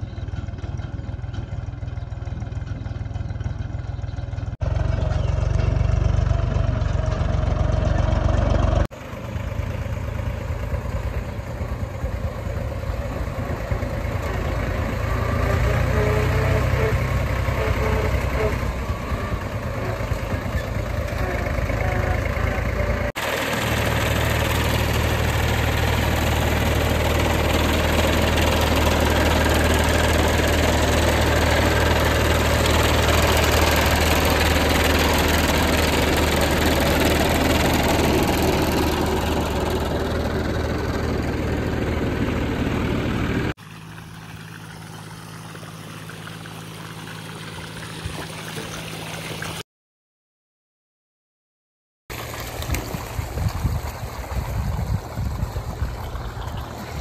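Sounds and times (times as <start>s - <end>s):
tractor diesel engine running: 0.0s - 49.6s
water gushing from hose: 11.4s - 41.1s, 43.6s - 49.6s, 52.1s - 57.0s.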